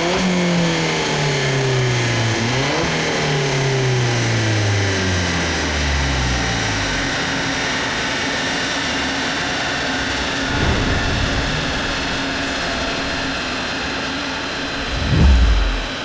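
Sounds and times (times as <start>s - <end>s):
car engine revs falling: 14.6s - 16.0s.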